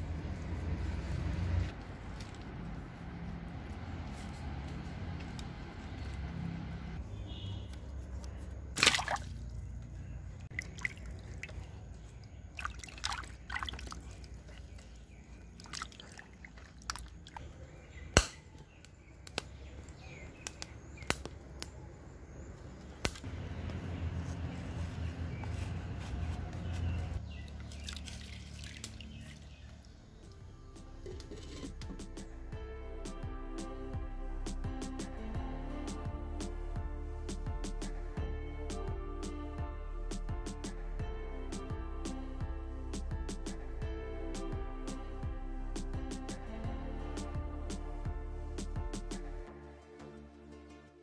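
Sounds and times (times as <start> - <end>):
water sloshing and dripping: 8.8 - 17.6, 27.4 - 30.4.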